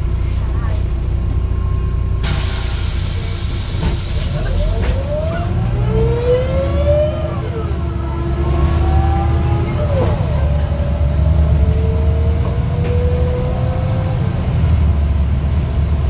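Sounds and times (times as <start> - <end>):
bus engine rumble: 0.0 - 16.0
compressed air hiss: 2.2 - 4.4.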